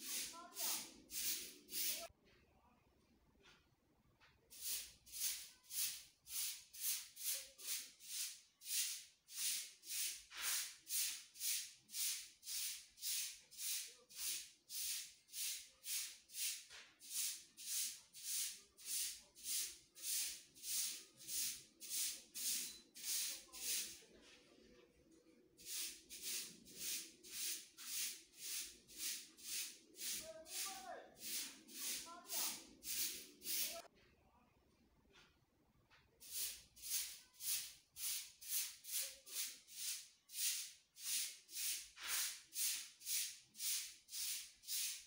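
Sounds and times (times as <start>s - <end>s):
repeating swishing hiss: 0.0s - 2.1s, 25.6s - 33.9s.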